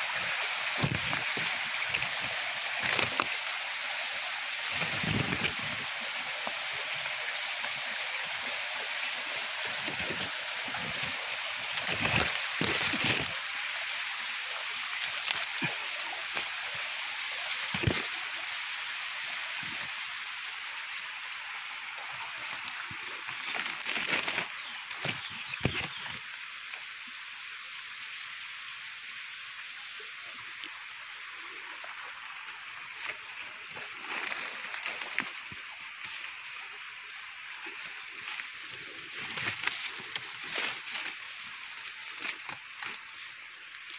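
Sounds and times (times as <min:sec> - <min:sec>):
footsteps and brush rustling: 0:00.0 - 0:03.6, 0:04.5 - 0:18.3, 0:20.8 - 0:26.2, 0:31.7 - 0:43.9
creek water running: 0:00.0 - 0:43.9.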